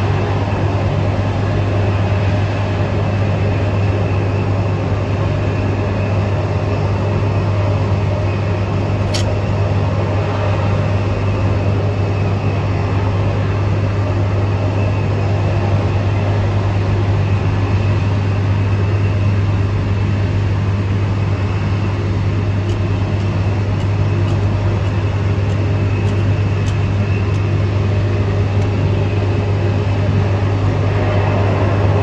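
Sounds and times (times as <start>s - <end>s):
constant rushing noise: 0.0s - 32.0s
low hum: 0.0s - 32.0s.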